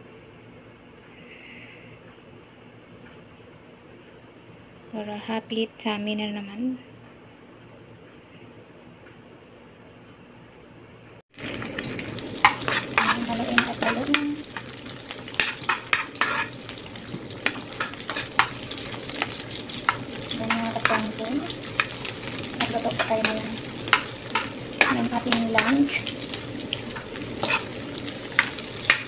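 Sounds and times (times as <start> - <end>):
onion and garlic sizzling in oil: 11.3 - 29.0
spatula scraping a pan: 12.0 - 29.0.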